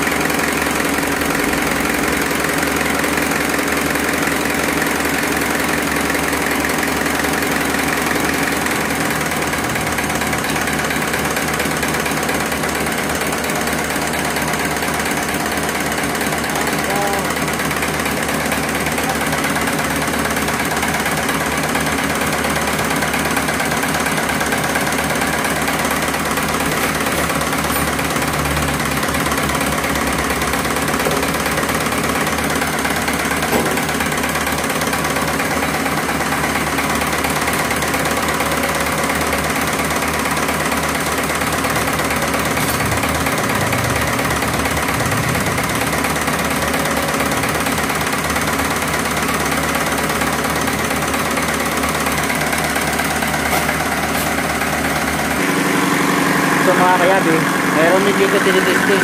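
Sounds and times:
diesel pump test bench running: 0:00.0 - 0:59.0.

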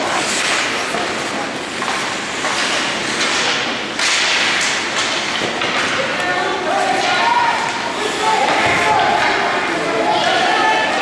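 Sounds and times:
skate blades scraping ice: 0:00.0 - 0:07.0
hockey sticks and puck knocking: 0:00.0 - 0:10.5.

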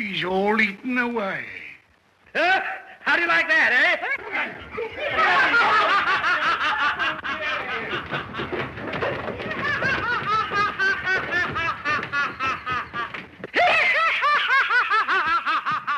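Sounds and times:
man laughing high-pitched: 0:09.6 - 0:15.9.

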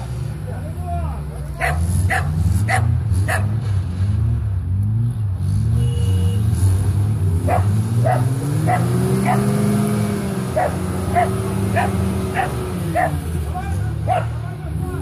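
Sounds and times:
off-road vehicle engines droning: 0:00.0 - 0:15.0
dog barking: 0:01.6 - 0:03.6, 0:07.4 - 0:09.6, 0:10.6 - 0:13.2, 0:14.1 - 0:14.4
engine revving up: 0:01.6 - 0:05.8, 0:06.4 - 0:15.0.

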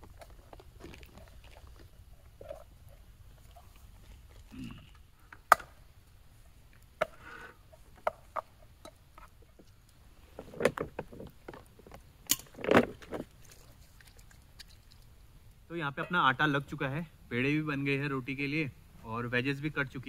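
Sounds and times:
rustling and handling noise: 0:06.3 - 0:15.2.

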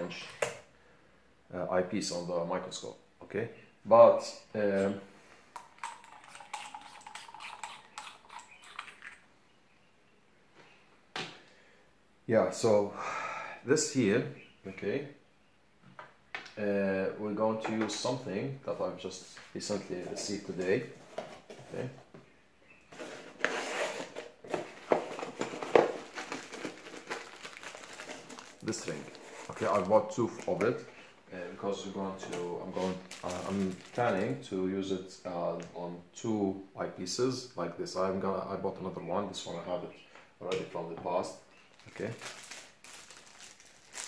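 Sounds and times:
plastic bag crinkling: 0:23.0 - 0:30.8, 0:32.3 - 0:34.4, 0:41.6 - 0:44.0.

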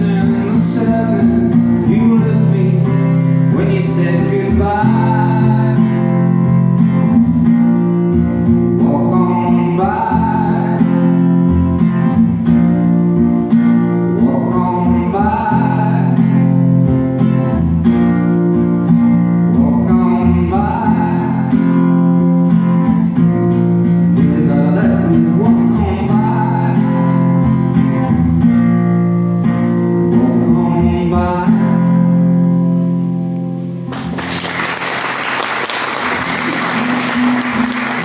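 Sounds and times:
man singing: 0:00.0 - 0:06.4, 0:08.8 - 0:11.2, 0:14.0 - 0:16.6, 0:19.5 - 0:21.8, 0:24.1 - 0:27.4, 0:30.1 - 0:32.1
acoustic guitar strumming: 0:00.0 - 0:38.0
audience applause: 0:33.9 - 0:38.0.

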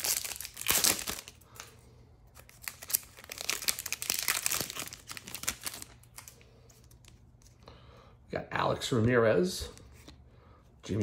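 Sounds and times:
wrapper tearing and crinkling: 0:00.0 - 0:01.7, 0:02.4 - 0:06.4.

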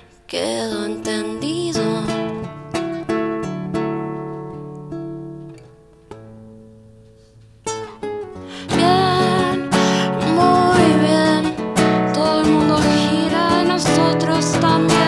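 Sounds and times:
woman singing: 0:00.0 - 0:02.6, 0:08.6 - 0:15.0
acoustic guitar strumming: 0:00.0 - 0:15.0.

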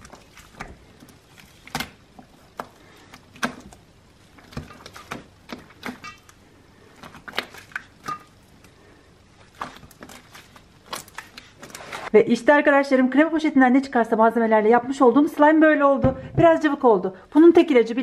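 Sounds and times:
slime squelching and popping: 0:00.0 - 0:08.8.

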